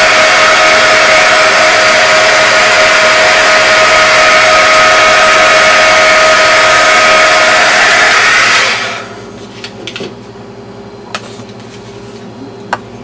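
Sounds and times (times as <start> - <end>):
heat gun blowing with whine: 0.0 - 9.4.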